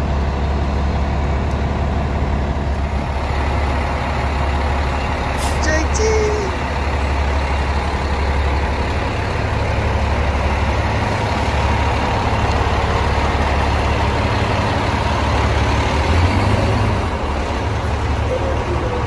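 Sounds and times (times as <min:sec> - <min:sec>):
diesel engine idling: 0:00.0 - 0:19.0.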